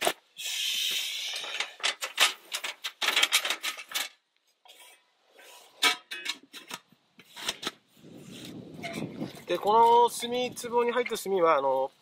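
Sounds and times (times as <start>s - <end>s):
metal clanks and clinks: 1.3s - 4.2s, 5.8s - 6.8s
rustling scrape: 6.5s - 9.4s.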